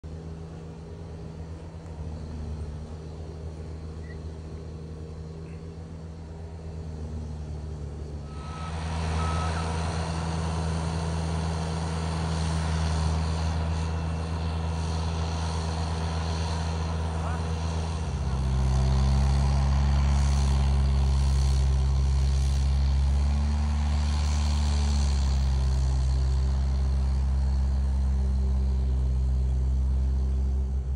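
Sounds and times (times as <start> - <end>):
loader engine running: 0.0 - 30.9
reversing alarm beeps: 8.3 - 9.7.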